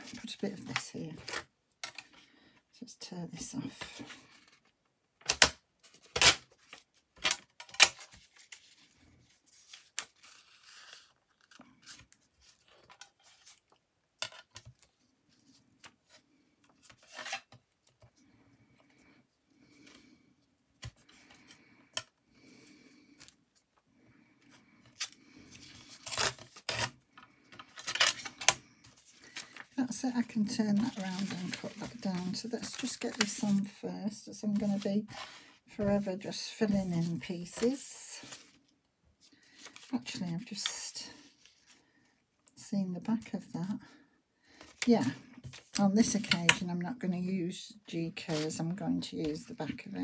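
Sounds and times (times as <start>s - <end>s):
paper handling: 24.9s - 33.8s, 34.4s - 38.6s.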